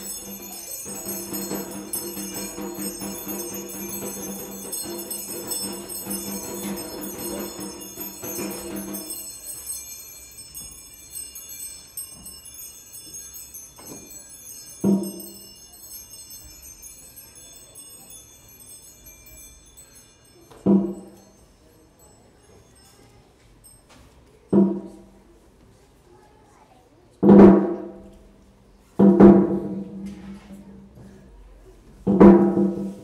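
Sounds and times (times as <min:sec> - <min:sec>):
jingling metallic shimmer: 0:00.0 - 0:25.3.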